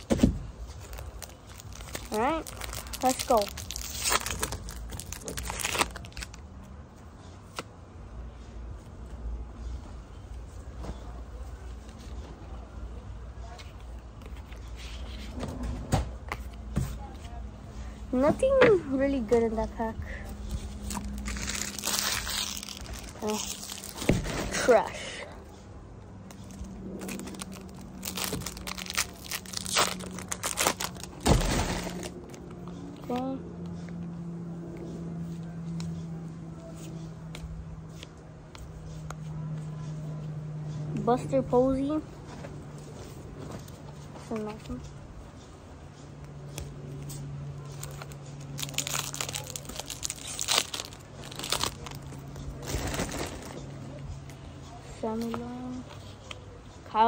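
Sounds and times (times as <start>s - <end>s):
plastic wrapper crinkling and tearing: 0.0s - 6.5s, 20.6s - 24.2s, 26.3s - 32.5s, 47.6s - 53.7s.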